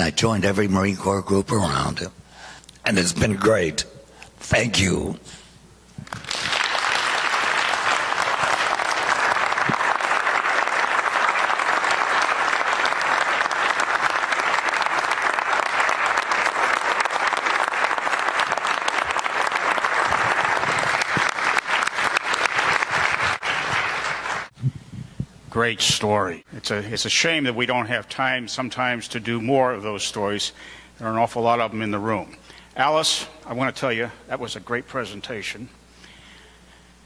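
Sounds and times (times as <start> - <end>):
audience applauding: 6.0 - 24.5.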